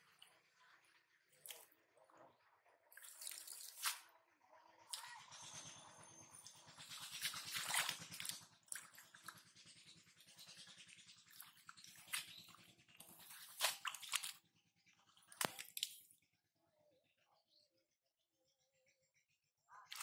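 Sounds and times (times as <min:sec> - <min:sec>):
hands splashing in muddy water: 0:03.0 - 0:04.0, 0:07.2 - 0:09.2, 0:11.3 - 0:14.4.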